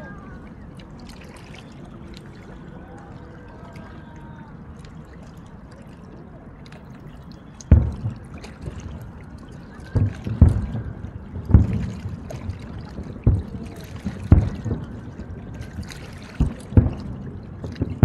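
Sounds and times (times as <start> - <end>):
faint crowd voices: 0.0 - 18.0
deep firework bang: 7.7 - 8.4, 10.0 - 15.0.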